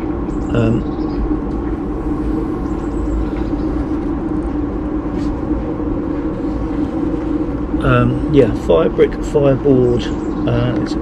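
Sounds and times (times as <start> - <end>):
engine-like hum: 0.0 - 11.0.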